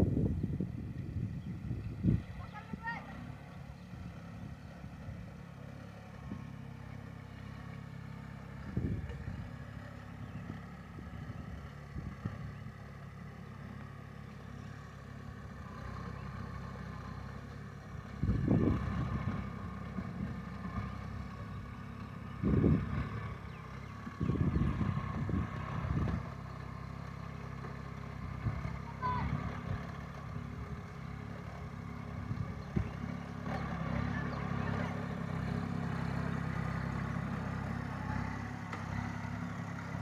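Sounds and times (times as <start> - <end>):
tractor diesel engine running: 0.0 - 40.0.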